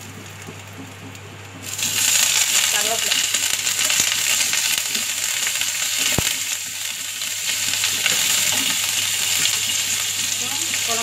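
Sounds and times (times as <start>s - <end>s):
oil sizzling in frying pan: 0.0s - 11.0s.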